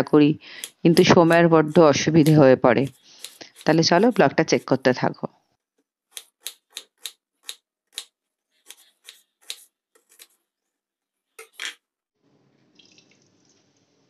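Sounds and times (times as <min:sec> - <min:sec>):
knife chopping on wooden board: 0:00.7 - 0:04.7, 0:06.1 - 0:10.3.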